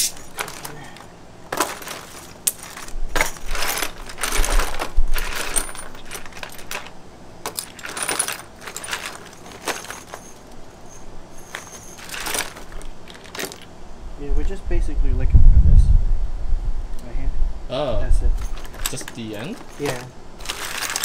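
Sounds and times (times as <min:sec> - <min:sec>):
metal fittings clinking in plastic bin: 0:00.0 - 0:13.7, 0:18.4 - 0:21.0.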